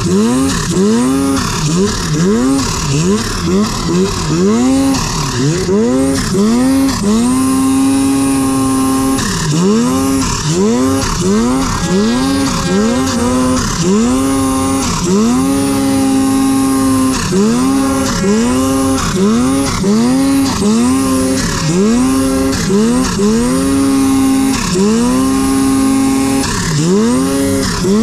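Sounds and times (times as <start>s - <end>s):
snowmobile engine revving: 0.0s - 28.0s.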